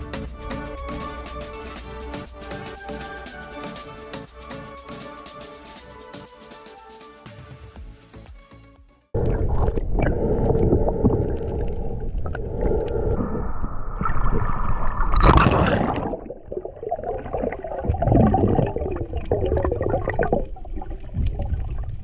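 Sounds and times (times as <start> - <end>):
water rushing and gurgling underwater: 9.2 - 22.0.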